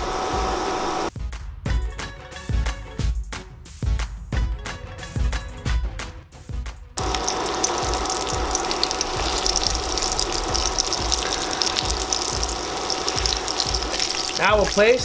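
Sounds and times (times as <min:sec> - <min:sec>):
steaks sizzling in hot oil: 0:07.0 - 0:15.0.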